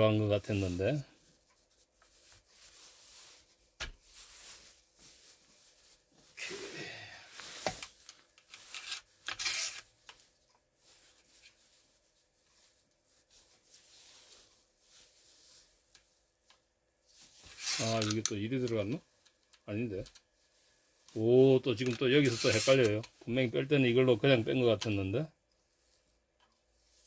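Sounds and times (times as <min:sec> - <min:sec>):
metal parts rubbing and scraping: 0:17.5 - 0:18.2, 0:21.9 - 0:23.0.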